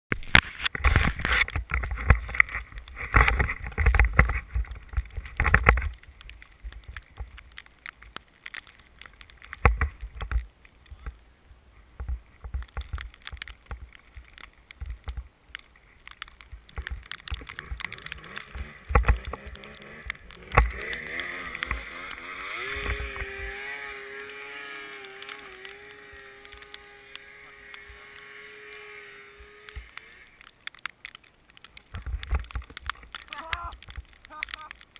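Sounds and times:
snowmobile engine running: 0:17.4 - 0:30.5.

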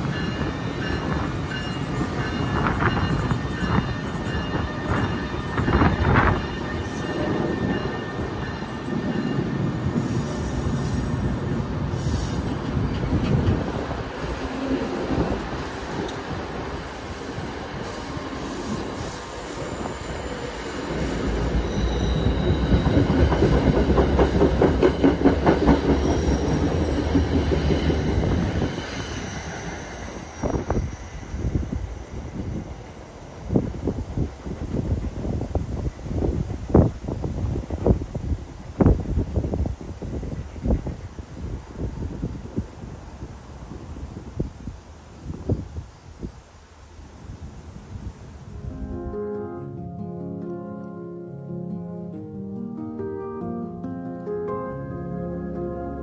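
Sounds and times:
train wheels clattering over rail joints: 0:22.4 - 0:28.7.

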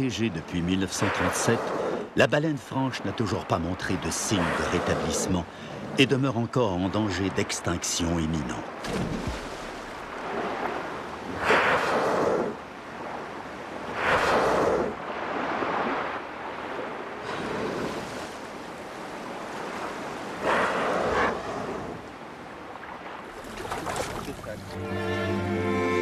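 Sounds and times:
water whooshing surges: 0:00.0 - 0:06.1, 0:08.8 - 0:26.0
water splashing and churning: 0:00.0 - 0:24.8.

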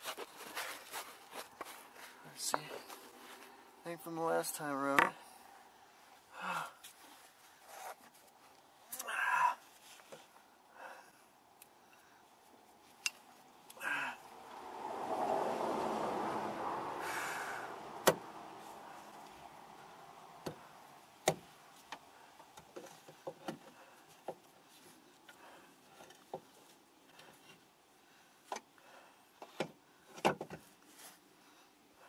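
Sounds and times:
rushing noise: 0:13.8 - 0:19.1.

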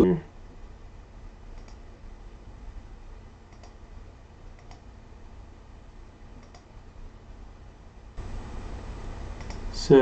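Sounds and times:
faint low hum: 0:00.0 - 0:10.0
computer mouse clicking: 0:01.5 - 0:01.8, 0:03.5 - 0:03.8, 0:04.5 - 0:04.9, 0:06.4 - 0:06.7, 0:09.4 - 0:09.6.

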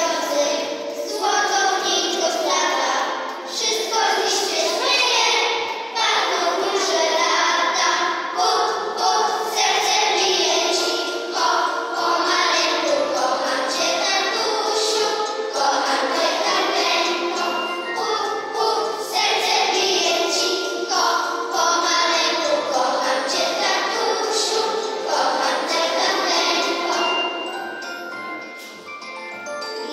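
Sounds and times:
children's choir singing: 0:00.0 - 0:29.9
recorded backing music: 0:00.0 - 0:29.9
jingling bell percussion: 0:10.6 - 0:29.9.

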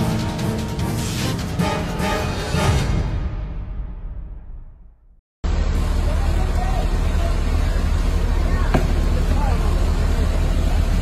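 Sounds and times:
dramatic theme music: 0:00.0 - 0:05.0.

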